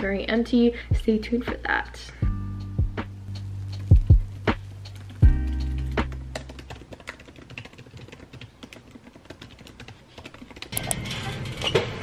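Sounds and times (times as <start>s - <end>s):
fast typing on laptop keyboard: 4.9s - 10.8s
grocery store noise: 10.7s - 12.0s.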